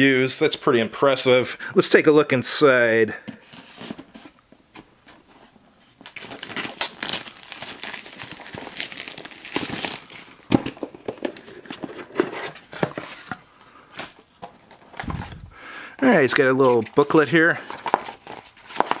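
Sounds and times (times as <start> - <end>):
plastic shrink wrap crinkling: 5.9 - 12.2, 16.2 - 19.0.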